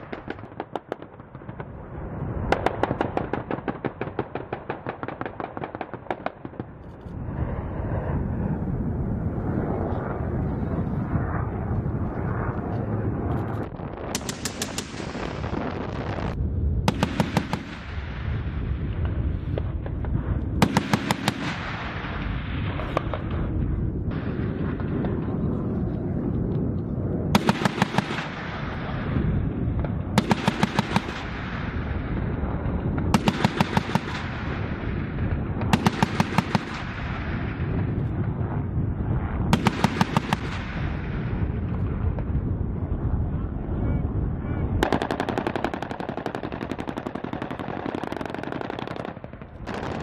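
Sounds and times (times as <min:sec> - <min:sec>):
steady low rumble: 0:00.0 - 0:50.0
cannon automatic fire bursts: 0:02.5 - 0:06.8, 0:13.7 - 0:25.5, 0:27.3 - 0:38.4, 0:39.3 - 0:42.1, 0:44.8 - 0:50.0.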